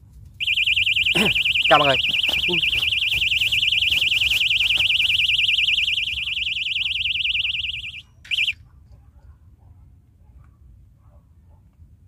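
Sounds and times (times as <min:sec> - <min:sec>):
electronic bite alarm warbling: 0:00.4 - 0:08.6.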